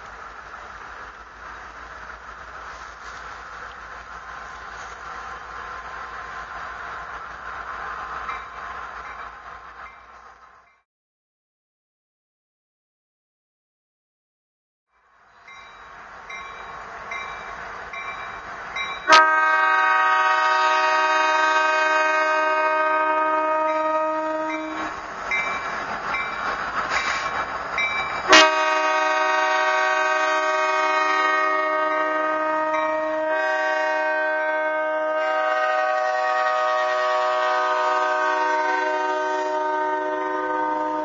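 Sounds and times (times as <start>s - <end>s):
freight train rumble: 0.0s - 10.8s, 14.9s - 41.0s
locomotive bell ringing: 15.4s - 19.2s
locomotive air horn blasts: 19.1s - 24.9s, 28.3s - 41.0s.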